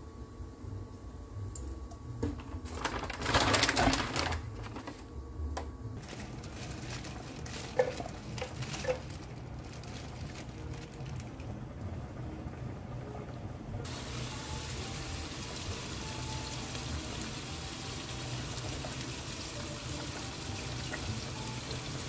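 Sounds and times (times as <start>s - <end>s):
paper towel rustling and squishing: 2.3s - 5.1s, 6.0s - 11.5s.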